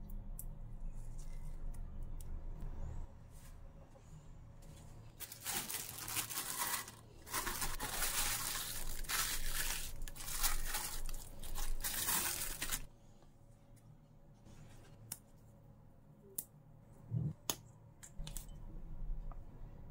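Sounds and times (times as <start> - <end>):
plastic bag rustling: 5.1 - 12.9.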